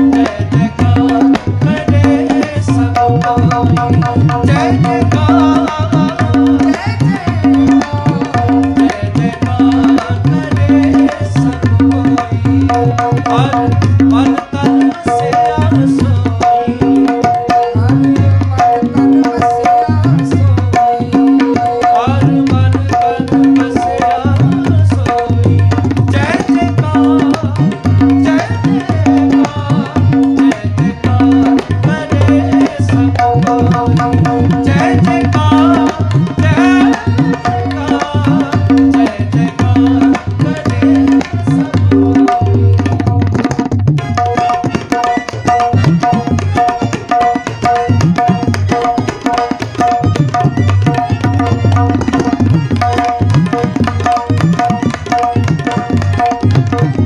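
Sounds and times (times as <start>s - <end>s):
fast tabla playing: 0.0s - 57.0s
looping melodic accompaniment: 26.5s - 57.0s.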